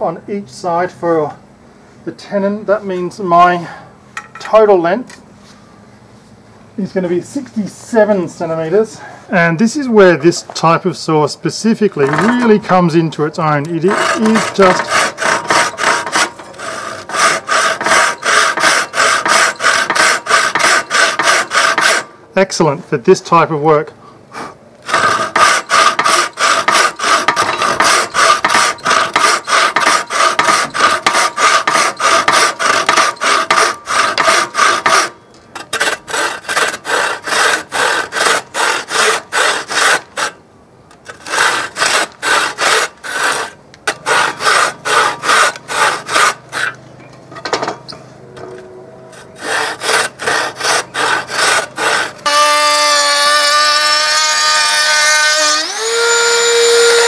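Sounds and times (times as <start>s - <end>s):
hand saw cutting wood: 11.9s - 13.0s, 13.6s - 22.1s, 24.8s - 40.4s, 41.0s - 46.8s, 49.1s - 57.0s
trim router whining: 51.8s - 57.0s.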